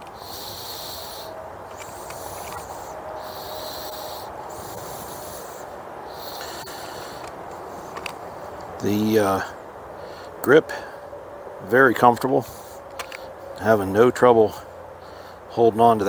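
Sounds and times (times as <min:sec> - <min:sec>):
man breathing through nose: 0:00.0 - 0:08.6, 0:09.4 - 0:11.1, 0:12.4 - 0:13.5, 0:14.7 - 0:15.5.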